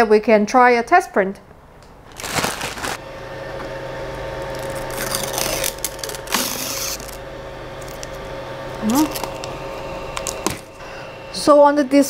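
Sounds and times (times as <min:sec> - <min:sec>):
printer cooling fan hum: 0:01.9 - 0:12.0
plastic bag crinkling: 0:02.1 - 0:03.0.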